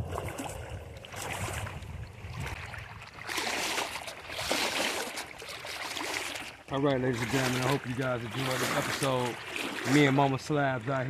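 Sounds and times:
wind rumble on microphone: 0.0 - 4.5
waves lapping against rocks: 0.0 - 11.0.

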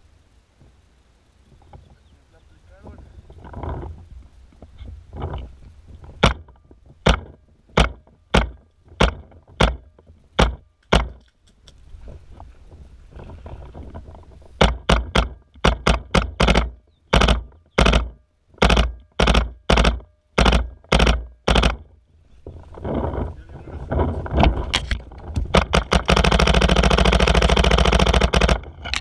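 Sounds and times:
paintball marker firing: 6.2 - 11.2, 14.6 - 21.9, 24.8 - 29.0.

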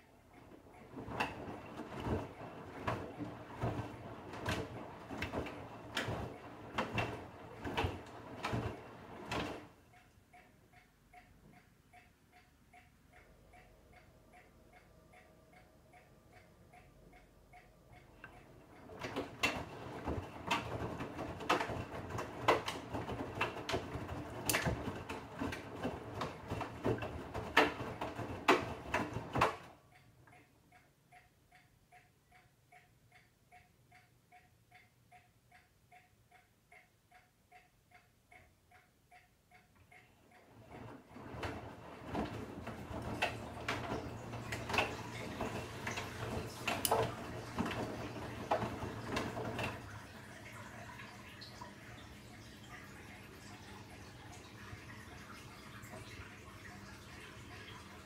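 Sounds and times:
washing machine laundry tumbling: 0.5 - 9.8, 18.6 - 29.8, 40.4 - 58.0.

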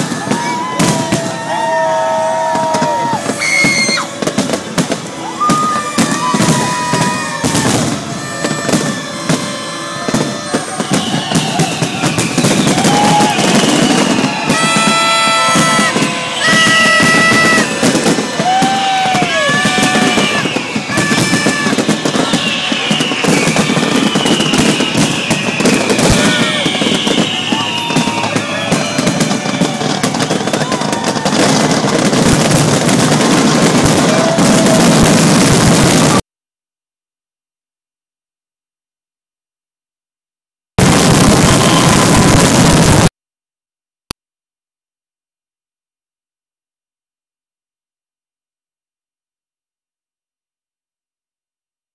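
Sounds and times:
fireworks bangs and crackles: 0.0 - 36.2, 40.8 - 43.1.

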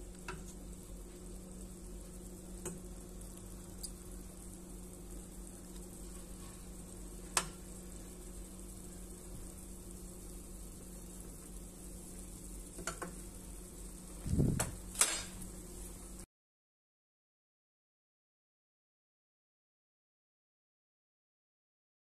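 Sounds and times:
pot of water boiling: 0.0 - 16.2.

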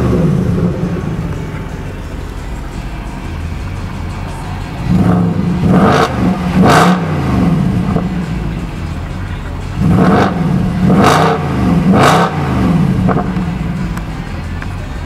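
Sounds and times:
car engine revving and idling: 0.0 - 15.0.

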